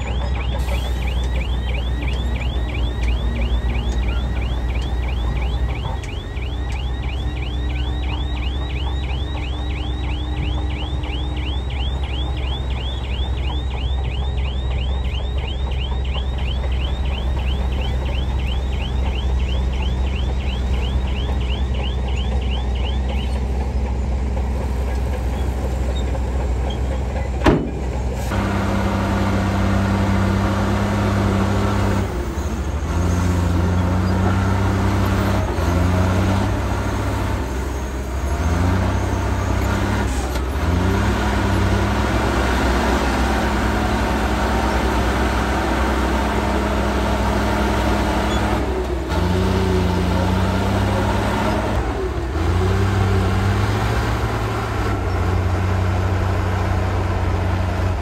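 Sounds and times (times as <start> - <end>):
bulldozer diesel engine: 0.0 - 58.0.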